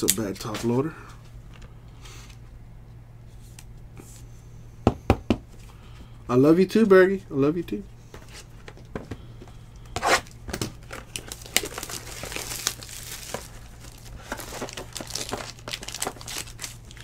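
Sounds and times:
plastic wrapping ripping: 0:10.0 - 0:17.0
plastic wrapping crinkling: 0:10.6 - 0:17.0.

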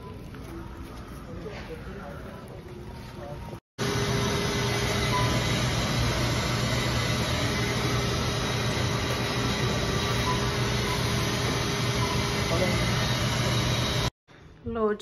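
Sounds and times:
key cutting machine whirring: 0:03.8 - 0:14.1.

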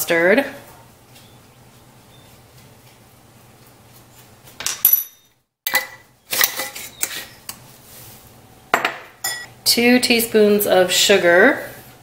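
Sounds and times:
metal utensils clinking: 0:04.7 - 0:07.3.

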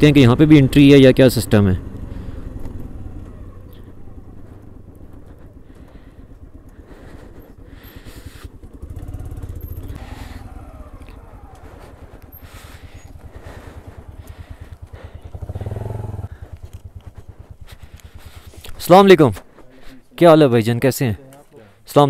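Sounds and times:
motorcycle engine running: 0:00.0 - 0:19.6.

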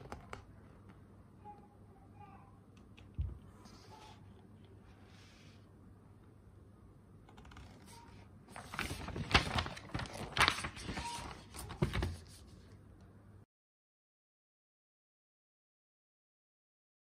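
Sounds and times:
paper pages rustling: 0:07.4 - 0:12.8.

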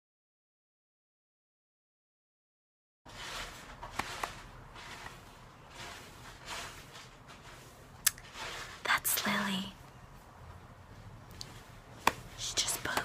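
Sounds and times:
faint rustling: 0:03.1 - 0:13.0.

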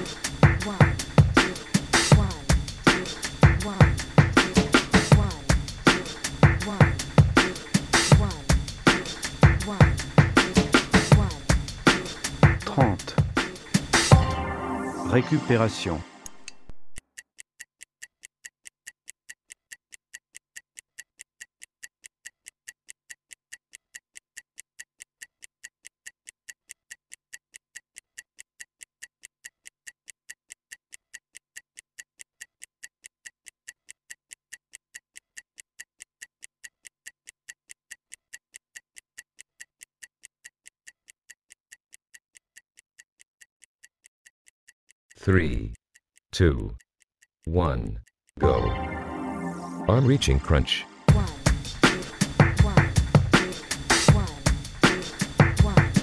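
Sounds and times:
stopwatch ticking: 0:00.0 - 0:14.2, 0:17.0 - 0:48.4, 0:51.1 - 0:56.0
background music: 0:00.0 - 0:16.8, 0:48.4 - 0:56.0.

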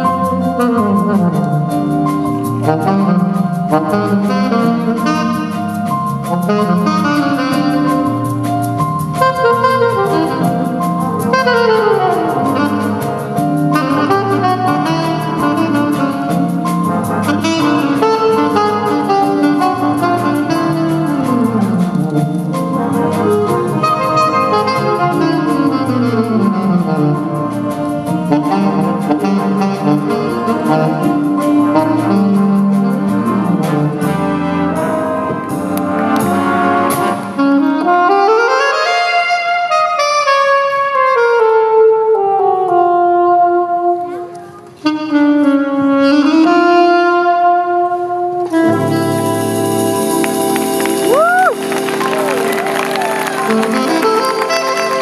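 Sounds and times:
jazz band playing: 0:00.0 - 0:55.0
horns holding long chords: 0:48.3 - 0:55.0.

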